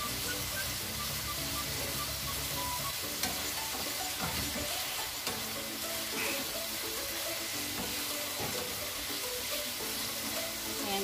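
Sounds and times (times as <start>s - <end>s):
meat sizzling in a frying pan: 0.0s - 11.0s
spatula tapping: 7.6s - 8.8s.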